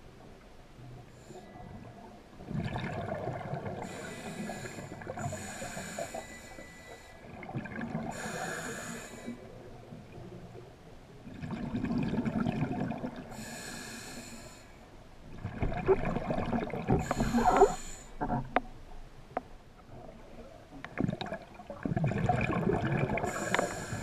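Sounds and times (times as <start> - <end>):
exhaled bubbles underwater: 1.8 - 5.8, 7.3 - 8.8, 11.2 - 13.5, 15.3 - 18.6, 20.0 - 24.0
regulator inhale hiss: 3.8 - 7.3, 8.1 - 9.5, 13.3 - 14.8, 17.0 - 18.2, 23.3 - 24.0.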